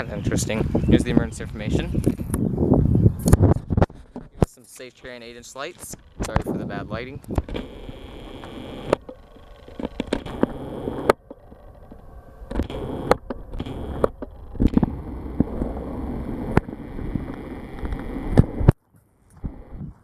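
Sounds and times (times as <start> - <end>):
wind rumble on microphone: 0.0 - 4.5, 5.2 - 9.2, 9.8 - 20.0
handheld camera knocks and scrapes: 3.2 - 4.6.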